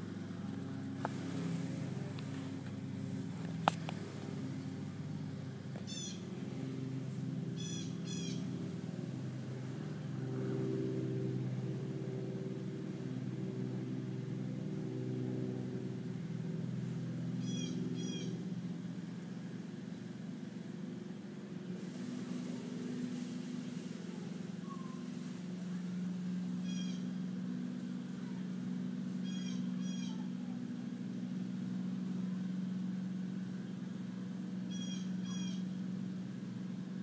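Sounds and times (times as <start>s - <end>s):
lawn mower engine running: 0.0s - 37.0s
bird chirping: 5.9s - 6.2s, 7.6s - 8.4s, 26.6s - 27.1s, 29.2s - 30.3s, 34.7s - 35.7s.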